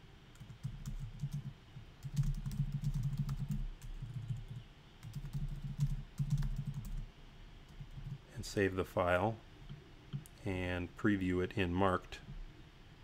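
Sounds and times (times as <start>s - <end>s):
typing on computer keyboard: 0.4s - 7.0s, 7.7s - 8.2s.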